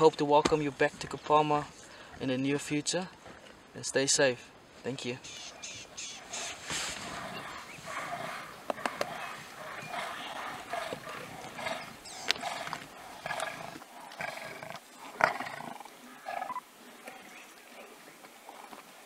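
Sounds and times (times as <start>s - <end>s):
lions growling and snarling: 5.5s - 17.2s.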